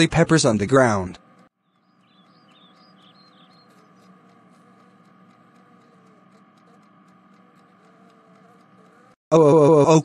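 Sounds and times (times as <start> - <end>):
steady low hum: 0.0 - 10.0
high squeaky chirps: 1.6 - 9.2.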